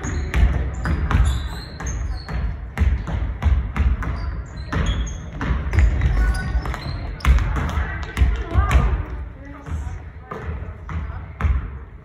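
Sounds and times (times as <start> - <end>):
basketballs bouncing on gym floor: 0.0 - 12.0
sneakers squeaking on court: 0.0 - 12.0.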